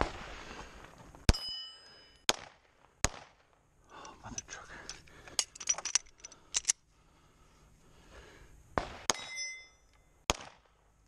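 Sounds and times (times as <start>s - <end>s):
steel plate ringing: 1.3s - 2.2s, 9.1s - 9.9s
pistol shot: 2.3s - 3.5s, 8.8s - 9.3s, 10.3s - 10.7s.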